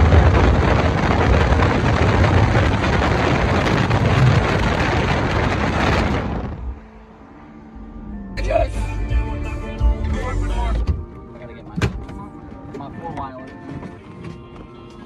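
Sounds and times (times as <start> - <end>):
wind buffeting microphone: 0.0 - 6.9
tyre and road noise: 0.0 - 15.0.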